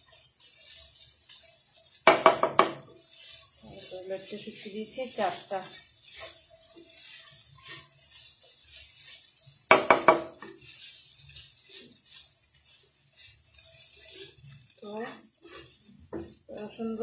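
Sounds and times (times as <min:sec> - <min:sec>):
spatula scraping frying pan: 0:00.0 - 0:17.0
spatula knocking on pan: 0:02.0 - 0:02.9, 0:09.7 - 0:10.5, 0:16.1 - 0:16.4.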